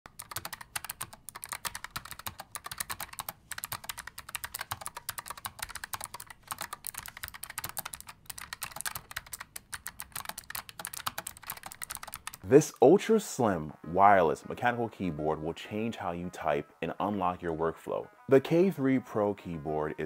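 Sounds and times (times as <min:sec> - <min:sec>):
fast typing key clicks: 0:00.1 - 0:12.4.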